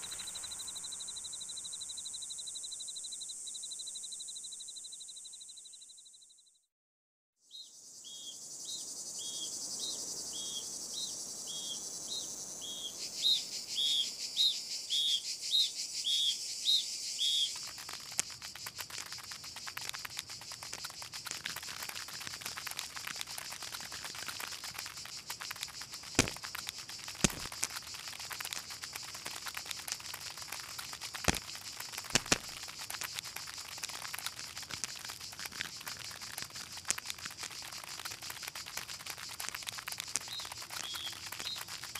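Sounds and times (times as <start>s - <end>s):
high insect drone: 0.0s - 5.5s, 7.6s - 41.9s
insect chirps: 0.0s - 6.6s, 7.5s - 41.9s
sharp clicks: 17.6s - 41.9s.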